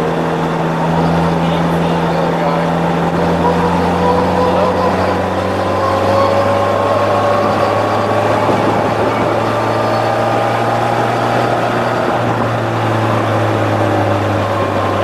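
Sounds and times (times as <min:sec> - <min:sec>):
engine drone: 0:00.0 - 0:15.0
wind and road noise: 0:00.0 - 0:15.0.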